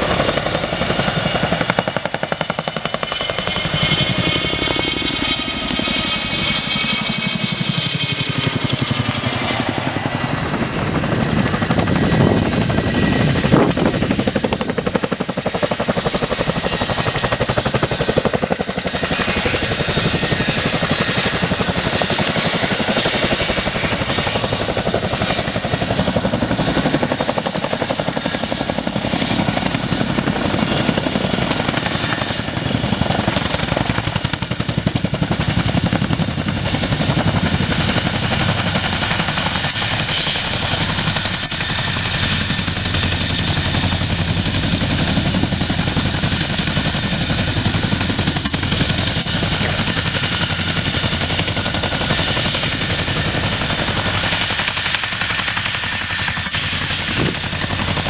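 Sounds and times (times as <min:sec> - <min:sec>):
helicopter rotor blade beat: 0:00.0 - 0:58.0
high turbine whine: 0:00.0 - 0:58.0.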